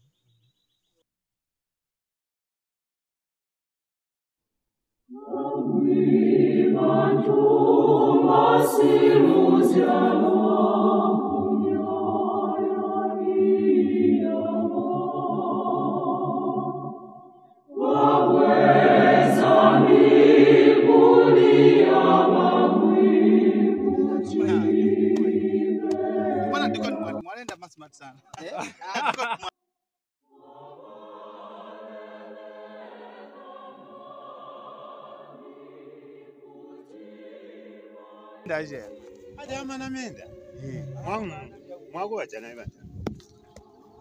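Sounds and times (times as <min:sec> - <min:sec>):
choir singing in harmony: 0:05.1 - 0:27.2, 0:30.3 - 0:42.3, 0:43.3 - 0:44.0.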